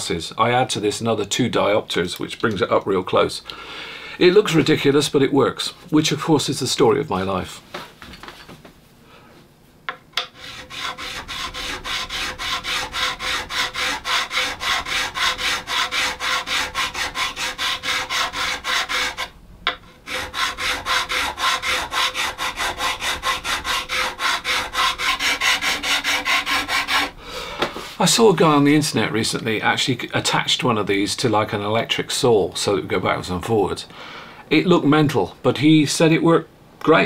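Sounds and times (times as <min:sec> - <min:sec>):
file rasping on metal frets: 0:10.2 - 0:27.2.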